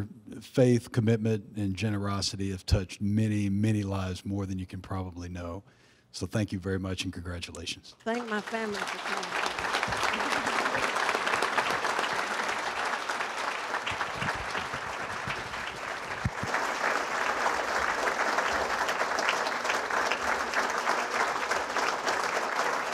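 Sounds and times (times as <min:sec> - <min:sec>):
audience applauding: 0:08.1 - 0:22.9.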